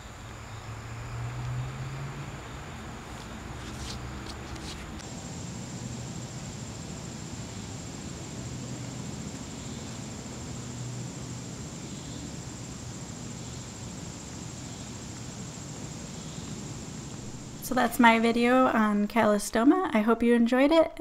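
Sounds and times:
high-pitched insect trill: 0:04.8 - 0:17.8.

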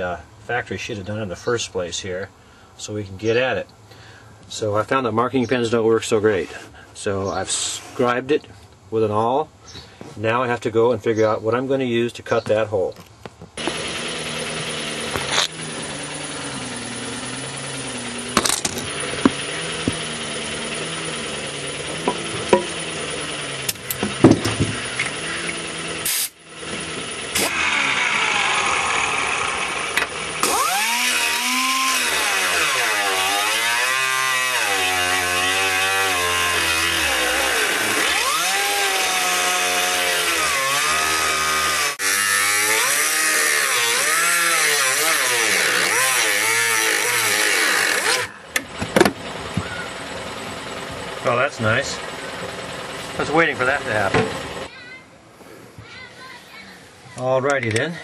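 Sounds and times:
pneumatic tool cutting sheet metal: 0:13.6 - 0:21.2, 0:21.8 - 0:48.4
air compressor hum: 0:13.6 - 0:32.4.

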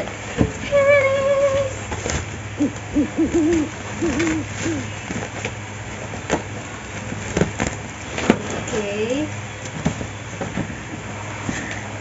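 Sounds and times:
cardboard parcel clicking: 0:00.0 - 0:12.0
person humming a tune: 0:00.6 - 0:01.8, 0:02.6 - 0:05.0.

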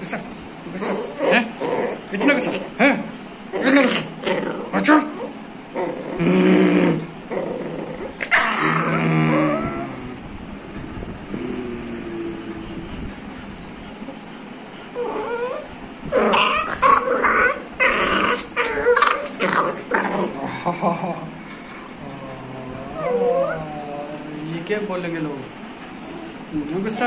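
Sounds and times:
puppy howling and whimpering: 0:03.6 - 0:10.2, 0:14.9 - 0:20.3, 0:22.0 - 0:24.4, 0:25.9 - 0:27.0
puppy yips: 0:25.9 - 0:26.5.

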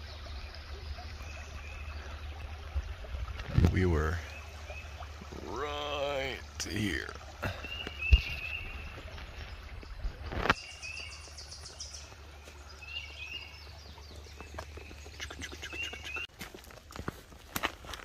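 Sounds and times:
small bird chirping: 0:14.3 - 0:16.3.

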